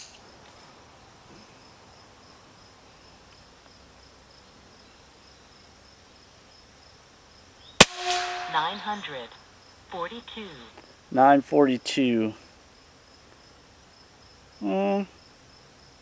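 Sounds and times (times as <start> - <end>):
insects chirring: 0.0 - 16.0
air rifle shot crack: 7.8 - 9.0.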